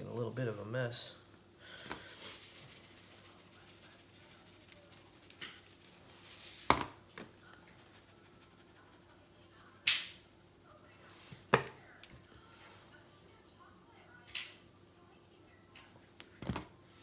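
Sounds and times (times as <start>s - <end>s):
spice shaker hiss: 1.8s - 11.0s.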